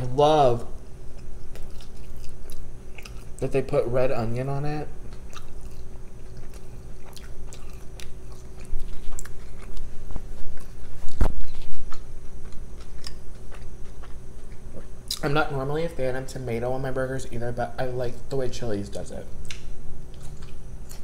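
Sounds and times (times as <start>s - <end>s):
person chewing food: 1.1s - 3.4s, 5.1s - 15.3s, 19.4s - 21.0s.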